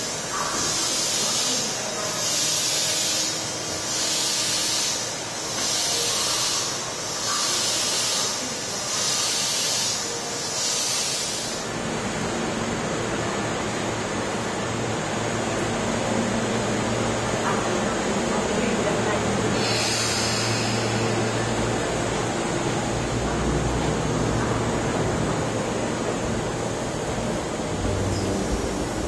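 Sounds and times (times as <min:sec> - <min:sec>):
steady hiss: 0:00.0 - 0:11.8, 0:19.5 - 0:21.7.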